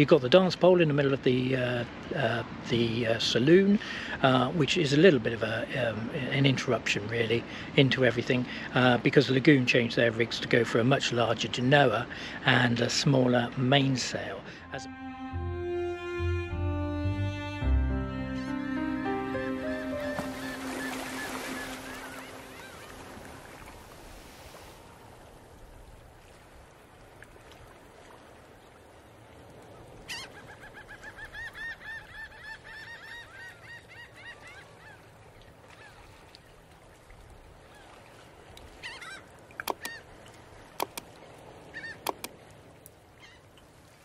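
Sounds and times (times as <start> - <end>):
music: 14.6 - 21.7
high arching animal calls: 19.5 - 23.1
sharp clicks: 39.6 - 39.9, 40.8 - 41.1, 42.1 - 42.3.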